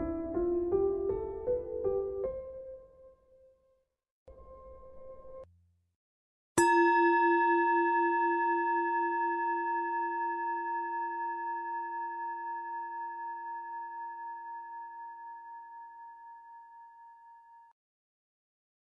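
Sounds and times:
singing bowl ringing: 6.6 - 17.7.

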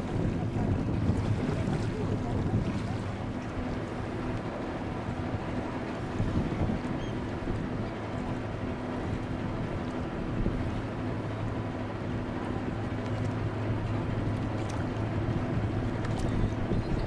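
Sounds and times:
wind noise on microphone: 0.0 - 3.6, 5.2 - 7.9, 13.5 - 17.0
ship engines droning: 0.0 - 17.0.

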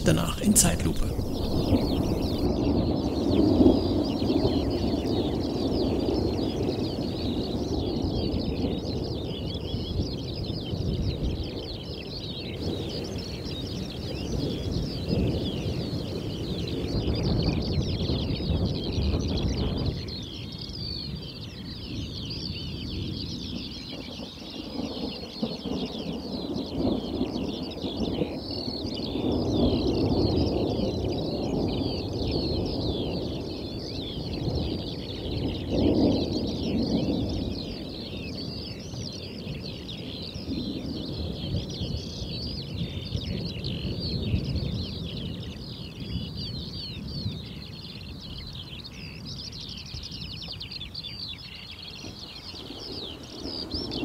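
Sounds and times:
dense high chirping: 0.0 - 2.5
distant thunder rumbles: 0.0 - 8.6.

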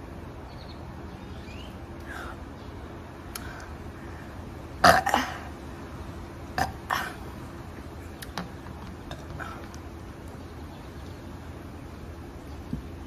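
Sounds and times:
woman burping: 4.8 - 5.5, 6.6 - 7.2.

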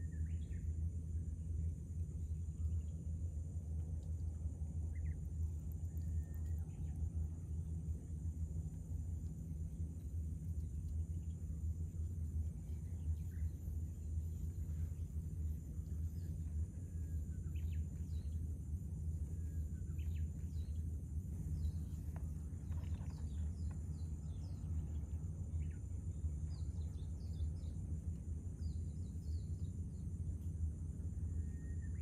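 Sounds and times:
high insect drone: 0.0 - 32.0
low rumble: 0.0 - 32.0
bird chirps: 10.6 - 18.5.

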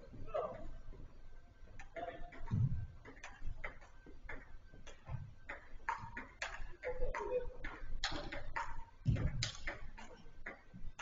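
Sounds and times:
football kicks and bounces: 2.0 - 10.8.

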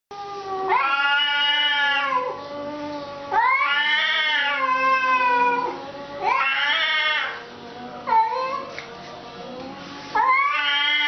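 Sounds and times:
cats yowling: 0.2 - 7.4, 8.0 - 8.7, 10.1 - 11.0.

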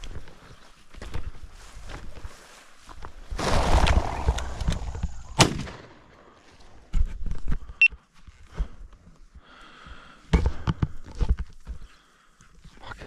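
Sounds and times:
footfalls through dry grass: 0.0 - 9.3
shotgun shot: 3.4 - 4.4, 5.4 - 6.0.

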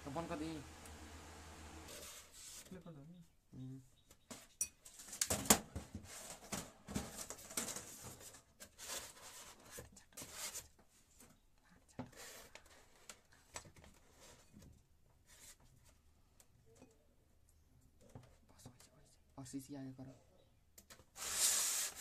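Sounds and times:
scraping and rustling handling noise: 4.3 - 16.9.

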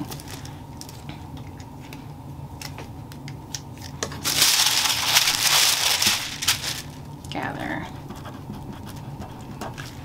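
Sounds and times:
tracing paper rustling: 4.2 - 7.0.

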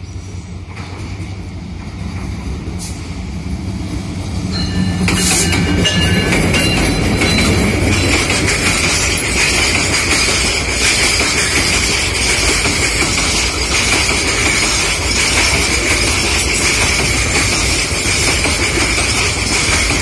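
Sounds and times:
diesel locomotive engine passing: 0.0 - 20.0
wheels rumbling on rail: 0.0 - 20.0.

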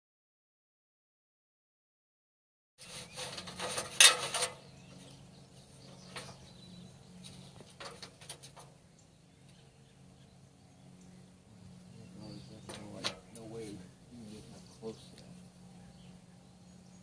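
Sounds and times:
metal ladder rattling: 2.8 - 4.6, 7.6 - 8.7.

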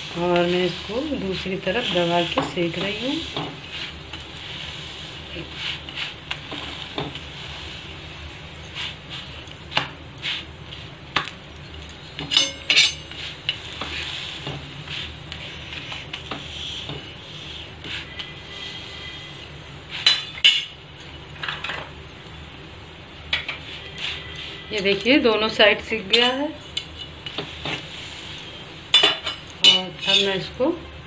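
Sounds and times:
spatula scraping a pan: 0.0 - 7.9, 12.2 - 20.8, 23.4 - 30.5
flatbread sizzling in oil: 0.0 - 30.5.

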